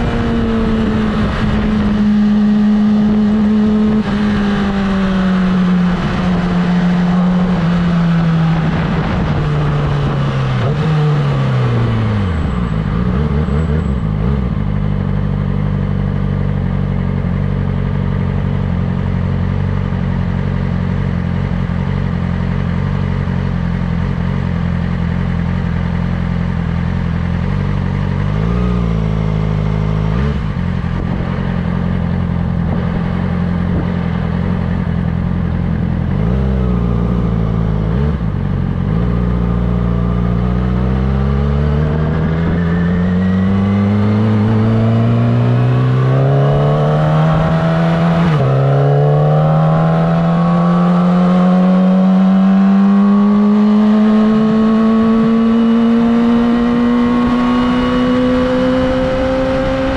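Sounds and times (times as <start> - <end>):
wind rush: 0.0 - 11.0, 32.3 - 34.8, 41.8 - 46.4
motorcycle engine: 0.0 - 59.9.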